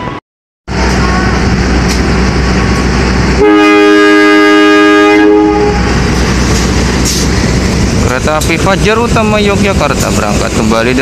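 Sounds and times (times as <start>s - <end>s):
train rumble: 0.0s - 11.0s
locomotive horn blast: 3.4s - 6.0s.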